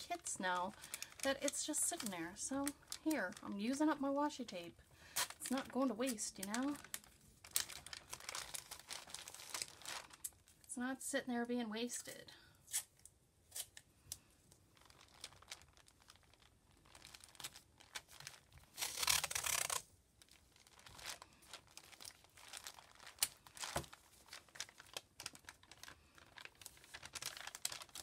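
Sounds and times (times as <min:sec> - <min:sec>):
paper rustling: 0:14.8 - 0:28.0
tape peeling and tearing: 0:15.0 - 0:19.9.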